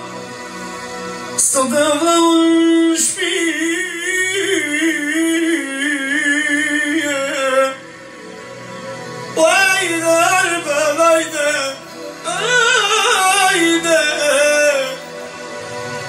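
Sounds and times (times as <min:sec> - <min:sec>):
electronic keyboard: 0:00.0 - 0:16.0
man singing into microphone: 0:01.3 - 0:08.2, 0:09.2 - 0:15.2.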